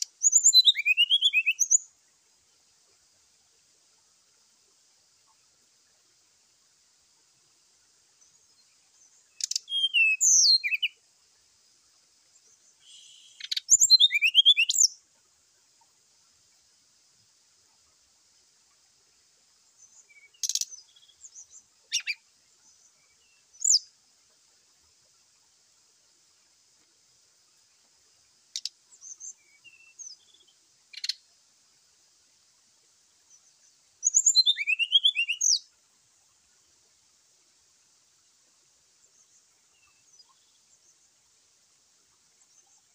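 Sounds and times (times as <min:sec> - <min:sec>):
faint high hiss: 0:00.0 - 0:42.9
bird singing high sliding whistles: 0:00.2 - 0:01.8, 0:09.4 - 0:11.0, 0:12.9 - 0:14.9, 0:34.0 - 0:35.6.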